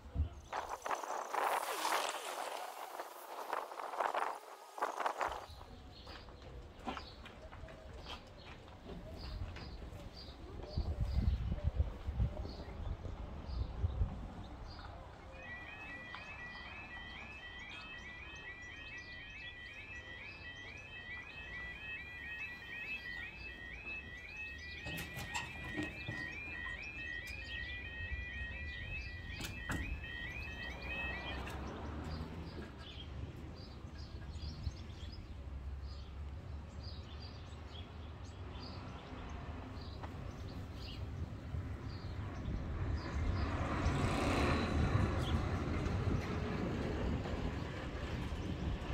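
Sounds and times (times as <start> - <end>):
warbling crossing alarm tone: 0.5 - 5.7, 15.3 - 32.6.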